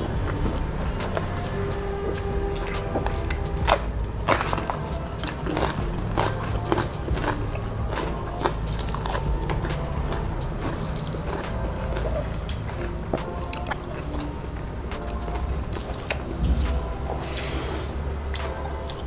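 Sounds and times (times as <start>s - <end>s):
chili crunching: 0.0s - 19.0s
fingers squishing rice: 0.0s - 19.0s
wet chewing: 0.0s - 19.0s.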